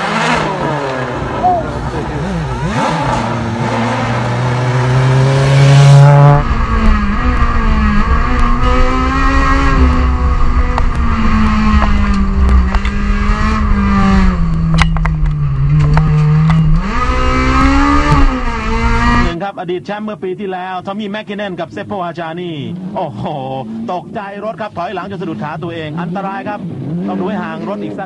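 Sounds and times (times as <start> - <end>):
rally car engine at full throttle: 0.0 - 19.4, 22.4 - 28.0
sharp clicks: 14.3 - 16.8.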